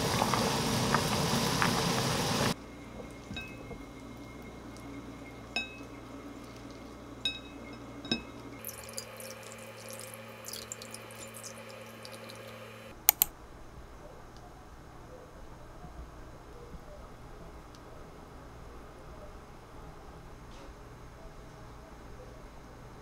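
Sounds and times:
sauce pouring trickling splash: 8.6s - 12.8s.

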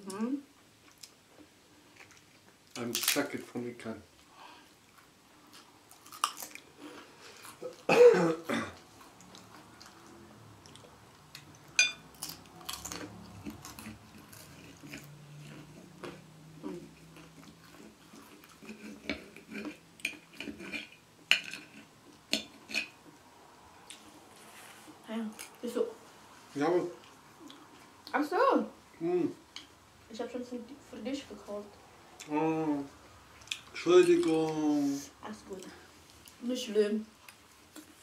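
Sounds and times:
cutlery clinking on plates: 11.7s - 12.1s
mouth sounds of eating: 12.3s - 19.8s.

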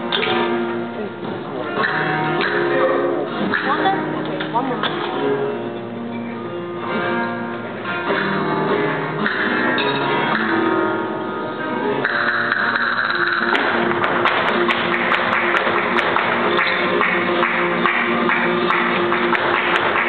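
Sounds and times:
acoustic guitar: 0.0s - 20.0s
sharp percussive strikes: 9.2s - 10.9s, 12.0s - 20.0s.

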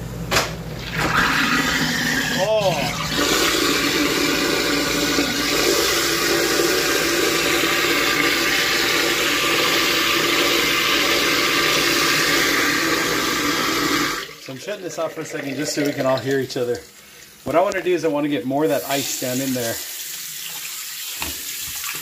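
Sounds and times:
garbage disposal grinding ice: 0.8s - 16.8s
tap water trickling: 20.4s - 22.0s.

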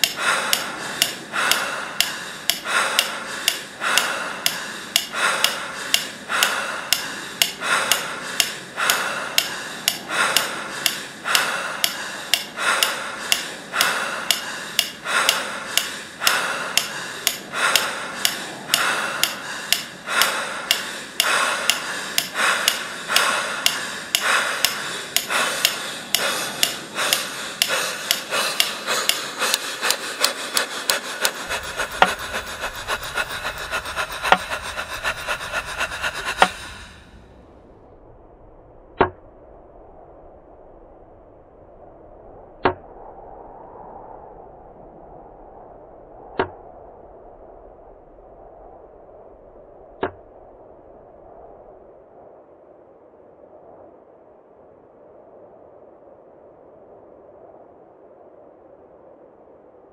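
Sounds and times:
sharp ticks: 0.0s - 37.1s
rasping scraping swell: 23.6s - 37.2s.

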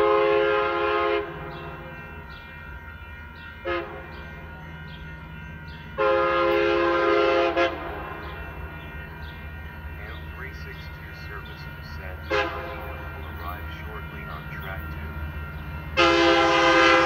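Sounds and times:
train air horn: 0.0s - 1.5s, 3.6s - 4.1s, 6.0s - 8.3s, 12.2s - 13.2s, 16.0s - 17.0s.

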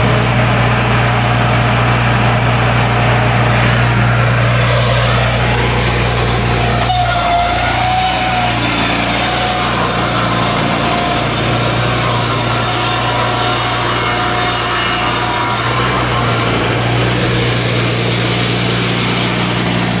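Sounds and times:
low machine hum: 0.0s - 20.0s
saws cutting wood: 0.0s - 20.0s.

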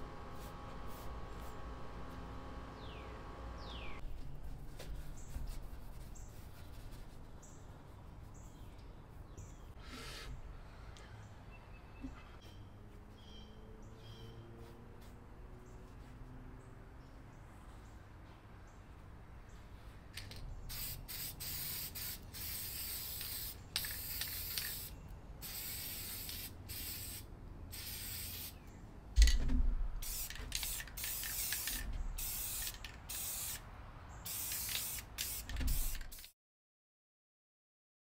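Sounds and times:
spray paint can hissing: 20.2s - 28.6s, 30.0s - 33.6s, 34.2s - 36.4s.

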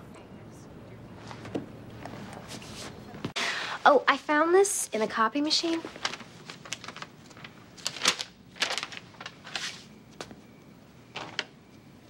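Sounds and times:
paper rustling and crinkling: 5.5s - 10.3s, 11.2s - 11.5s.

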